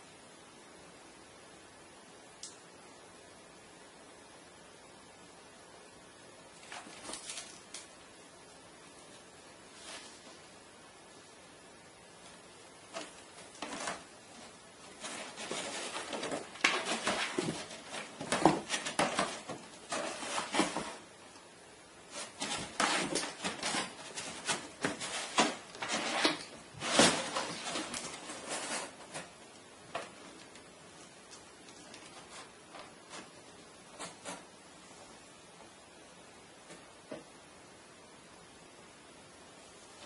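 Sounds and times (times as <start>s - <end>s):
cat scraping in cardboard box: 13.0s - 21.0s, 22.1s - 29.3s.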